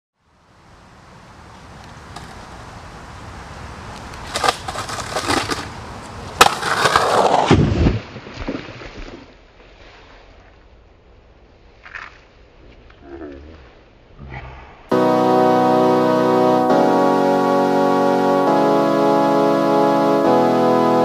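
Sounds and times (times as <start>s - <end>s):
skateboard wheels rolling and scraping: 1.4s - 7.8s
skateboard clattering on concrete: 4.2s - 5.8s, 6.4s - 7.5s
skateboard sharp crack: 4.2s - 5.8s, 6.4s - 9.0s.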